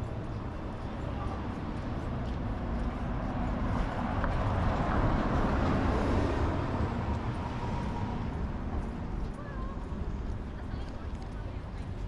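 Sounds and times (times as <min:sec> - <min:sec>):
traffic rumble: 0:00.0 - 0:12.0
motor vehicle passing: 0:01.2 - 0:10.3.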